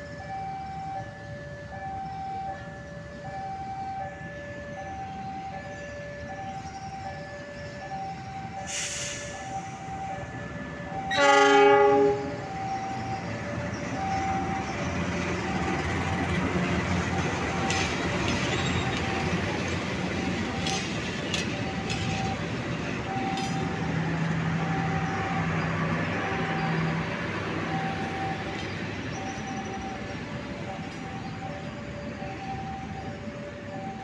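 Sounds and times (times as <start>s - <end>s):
train coaches rumbling on rails: 6.4s - 34.0s.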